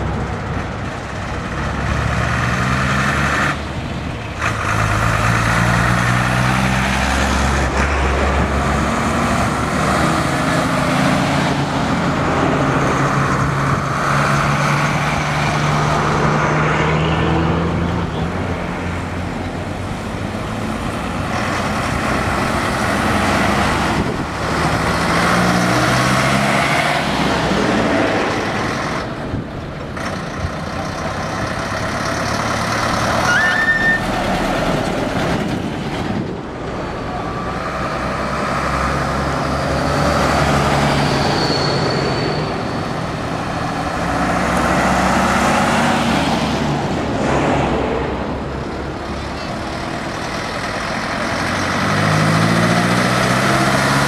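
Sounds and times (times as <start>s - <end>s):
diesel trucks driving past: 0.0s - 54.0s
short high tone: 33.2s - 34.1s.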